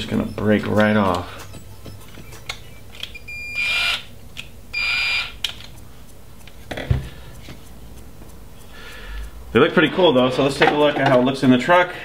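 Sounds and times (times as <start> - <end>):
electric screwdriver whine: 0.0 - 4.1, 4.8 - 5.4.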